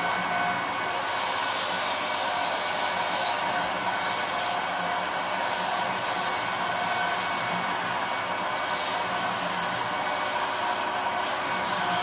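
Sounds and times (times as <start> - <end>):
vacuum cleaner running on carpet: 0.0 - 12.0.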